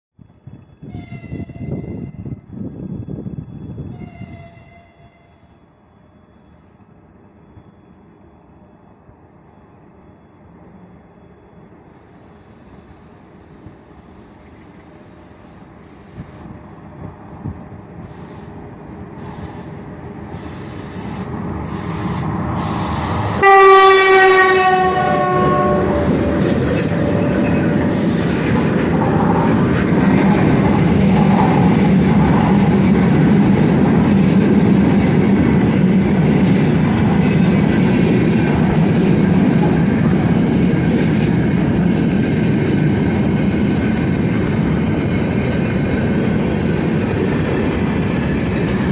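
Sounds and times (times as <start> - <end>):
electric locomotive passing: 0.2 - 48.9
locomotive horn blast: 23.4 - 26.5.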